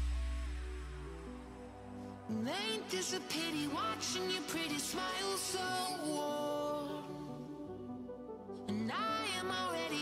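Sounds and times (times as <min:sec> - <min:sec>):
song with sung melody: 0:00.0 - 0:10.0.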